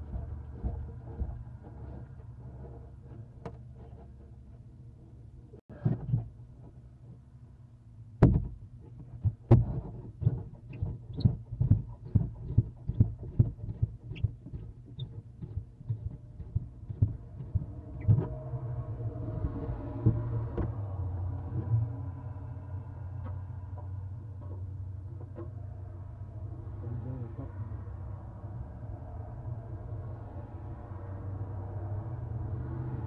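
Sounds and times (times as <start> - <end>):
knocks on wooden nest box: 8.2 - 8.6.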